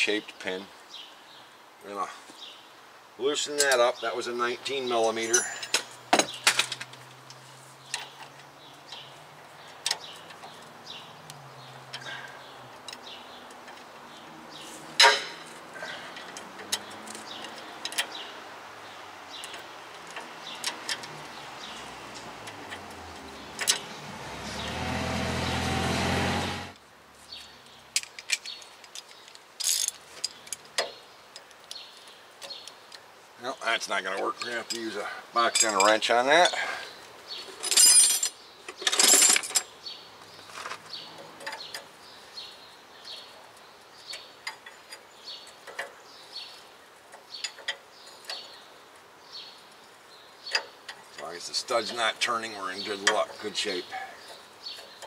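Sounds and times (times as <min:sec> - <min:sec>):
metal tools clinking: 0:05.0 - 0:06.9, 0:15.0 - 0:18.2, 0:28.0 - 0:30.8, 0:34.4 - 0:36.6, 0:37.4 - 0:39.7.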